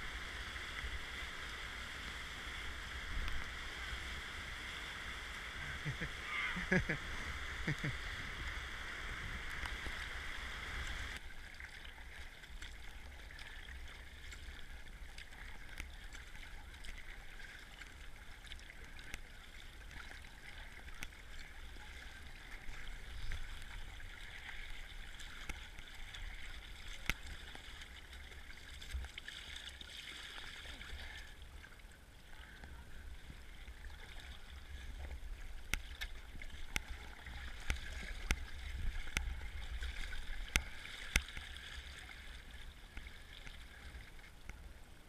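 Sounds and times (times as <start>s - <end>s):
rushing whitewater: 0.0s - 11.2s
kayak paddling: 0.0s - 45.0s
water lapping and splashing: 0.0s - 45.0s.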